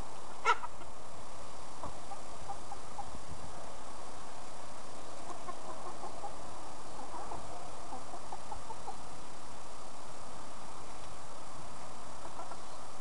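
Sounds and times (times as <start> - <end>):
young chickens clucking: 0.0 - 9.4, 11.8 - 13.0
steady hiss: 0.0 - 13.0.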